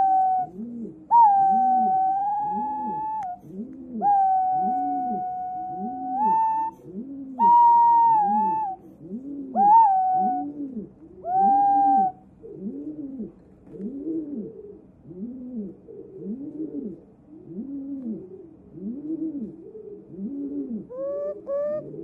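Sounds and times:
pigeon whistled song: 0:00.0 - 0:12.2, 0:20.2 - 0:22.0.

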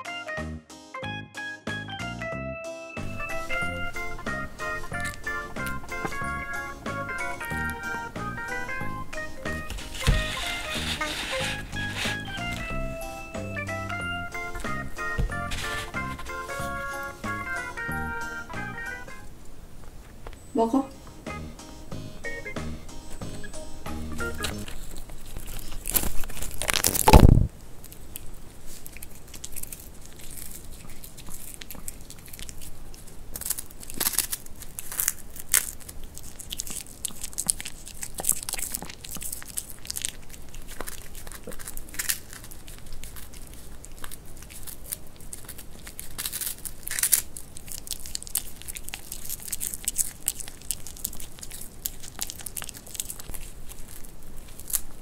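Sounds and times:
crinkling: 0:03.0 - 0:20.4, 0:23.3 - 0:55.0
dog chewing crisp chips: 0:03.2 - 0:19.2, 0:24.2 - 0:55.0
thump: 0:10.0 - 0:10.4, 0:15.2 - 0:15.5.

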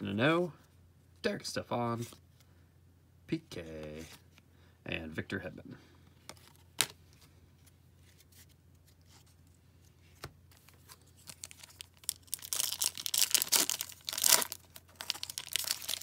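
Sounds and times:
card pack wrapper crinkling and tearing: 0:10.6 - 0:16.0.

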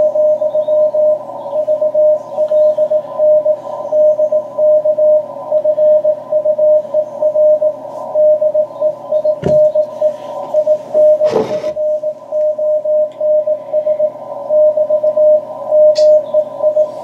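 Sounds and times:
morse code tone: 0:00.0 - 0:17.0
radio receiver hiss: 0:09.4 - 0:12.5.

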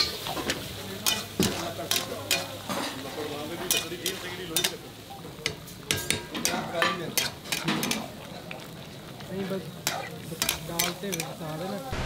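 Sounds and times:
metal spatula scraping a wok: 0:00.0 - 0:04.8
gravy sizzling: 0:00.0 - 0:12.0.

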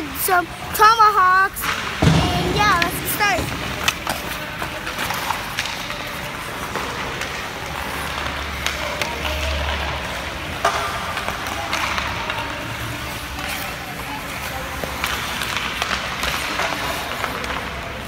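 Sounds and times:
hockey sticks clicking on ice: 0:01.5 - 0:18.0
skate blades scraping ice: 0:01.6 - 0:18.0.

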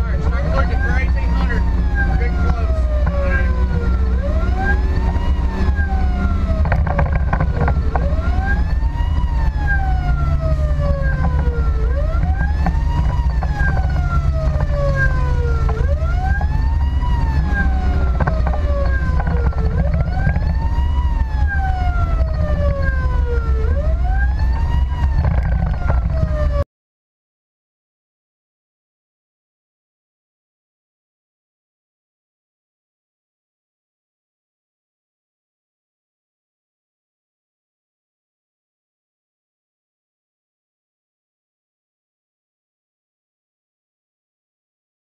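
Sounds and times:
emergency siren wailing: 0:00.0 - 0:26.6
engine and road rumble: 0:00.0 - 0:26.6.

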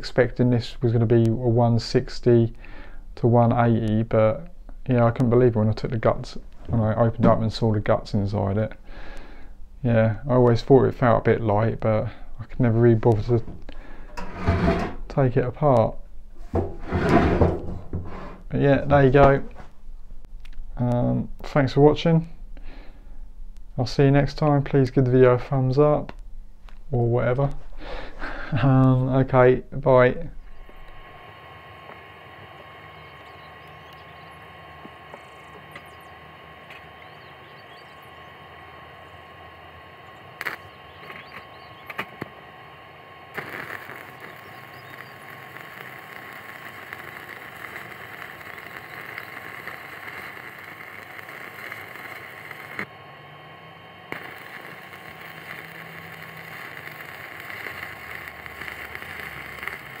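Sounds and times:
welding arc crackling and hissing: 0:10.0 - 0:15.9, 0:27.4 - 1:00.0
sharp clicks: 0:30.5 - 0:42.4, 0:43.3 - 0:52.9, 0:54.1 - 1:00.0.

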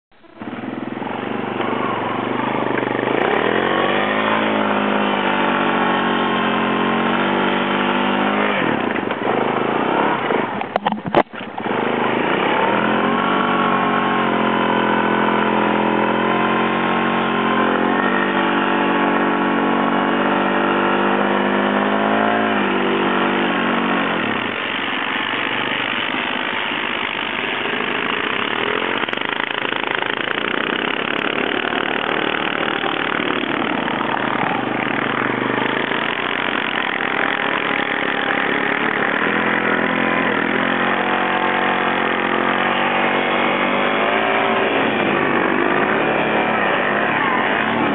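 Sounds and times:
atv engine revving: 0:00.0 - 0:47.9
sharp knock: 0:10.6 - 0:11.6.

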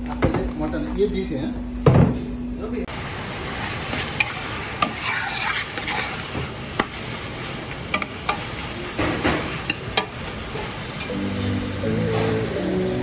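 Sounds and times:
minced meat sizzling: 0:02.9 - 0:13.0.

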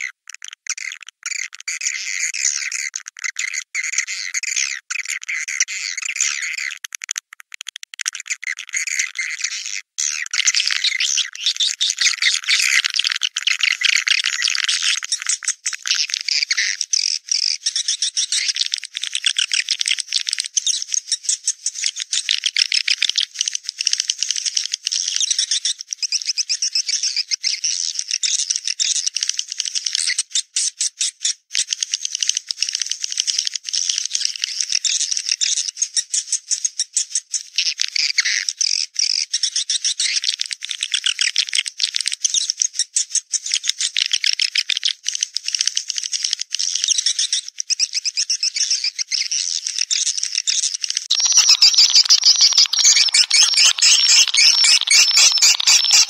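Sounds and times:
high-pitched bird twittering call: 0:08.8 - 0:12.8, 0:48.7 - 0:56.0.

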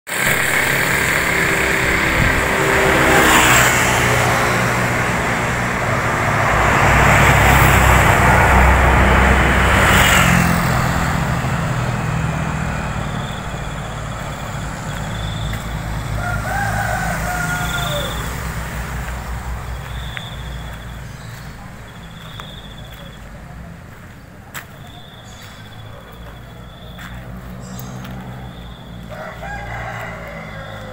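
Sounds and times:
motorbikes passing: 0:00.1 - 0:30.9
rooster crowing: 0:14.4 - 0:20.2, 0:28.1 - 0:30.9.

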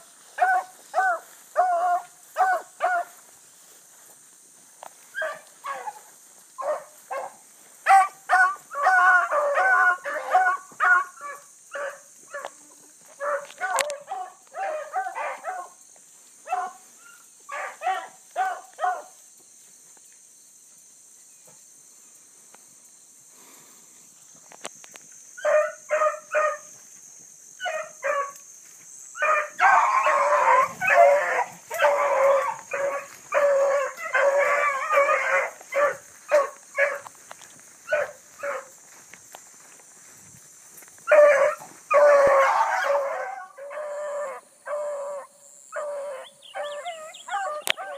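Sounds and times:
hounds baying: 0:00.2 - 0:03.2, 0:05.1 - 0:15.8, 0:16.4 - 0:19.2, 0:25.4 - 0:26.8, 0:27.6 - 0:28.4, 0:29.2 - 0:39.6, 0:41.0 - 0:47.9.

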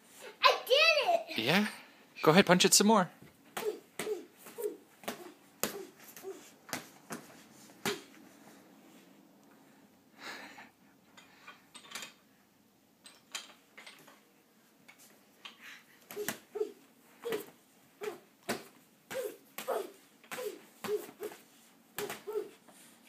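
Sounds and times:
gloves hitting punching bag: 0:03.5 - 0:08.1, 0:17.2 - 0:21.4, 0:22.0 - 0:22.5.

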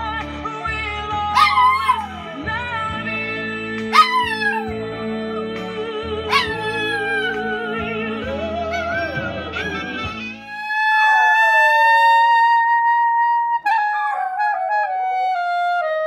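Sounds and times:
music with long held notes: 0:00.0 - 0:10.5
small dog howling: 0:01.4 - 0:02.1, 0:03.9 - 0:04.7, 0:06.3 - 0:07.6, 0:10.6 - 0:12.5.

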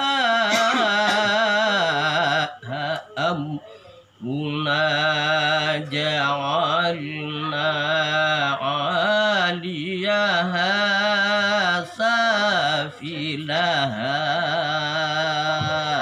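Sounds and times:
man chanting melodically: 0:00.0 - 0:16.0.

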